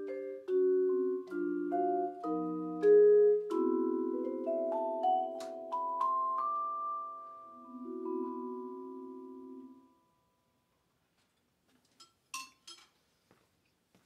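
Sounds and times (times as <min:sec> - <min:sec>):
vibraphone chord ringing: 0:00.0 - 0:10.3.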